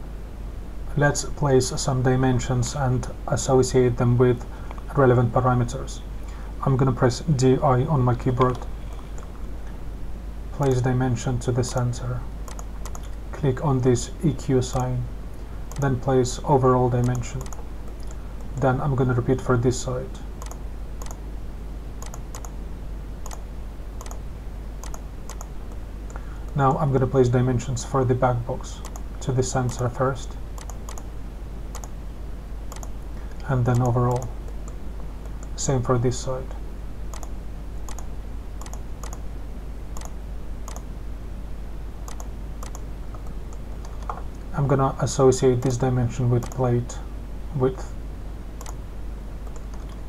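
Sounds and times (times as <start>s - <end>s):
low steady hum: 0.0s - 50.0s
computer mouse clicking: 8.4s - 9.3s, 12.5s - 13.2s, 15.7s - 15.9s, 17.0s - 18.6s, 20.4s - 21.2s, 22.0s - 22.6s, 23.2s - 23.4s, 24.0s - 24.2s, 24.8s - 26.6s, 28.8s - 29.9s, 30.6s - 31.1s, 31.7s - 31.9s, 32.7s - 35.6s, 37.1s - 39.2s, 40.0s - 40.9s, 42.1s - 44.4s, 46.4s - 46.6s, 48.6s - 48.8s, 49.4s - 50.0s
computer mouse button clicking: 12.5s - 13.1s, 17.0s - 18.5s, 22.0s - 22.5s, 24.8s - 25.5s, 32.7s - 32.9s, 37.1s - 37.3s, 42.1s - 44.2s.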